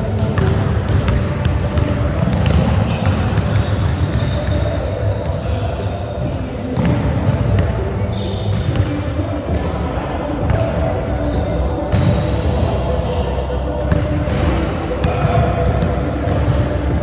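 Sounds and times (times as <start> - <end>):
sneakers squeaking on floor: 2.4 - 8.9, 10.4 - 16.8.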